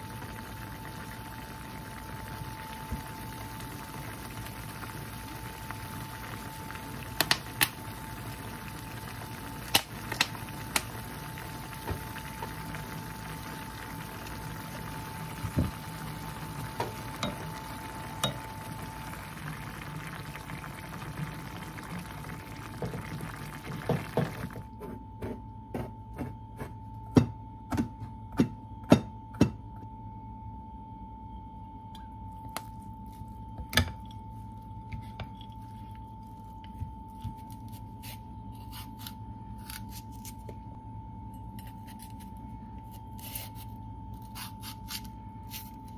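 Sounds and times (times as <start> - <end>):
stew simmering with a hiss: 0.0 - 24.6
faint steady hum: 0.0 - 45.9.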